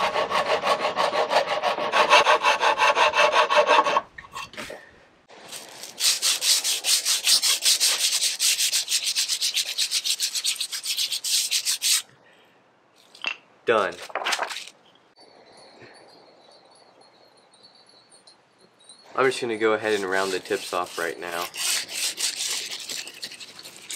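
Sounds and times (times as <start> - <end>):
wood rasp filing wood: 0.0 - 4.0, 5.9 - 12.0, 19.8 - 23.9
wood rubbed on sandpaper: 5.5 - 12.0, 19.8 - 23.9.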